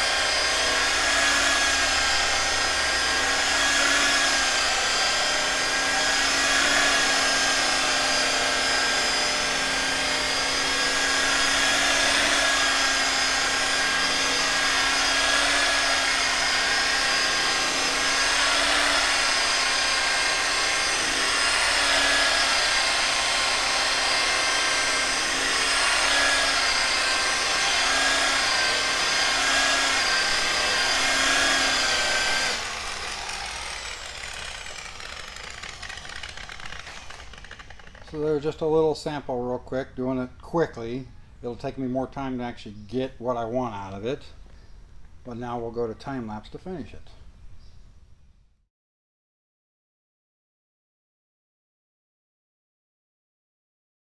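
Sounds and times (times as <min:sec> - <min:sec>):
electric rotary polisher running: 0:00.0 - 0:38.4.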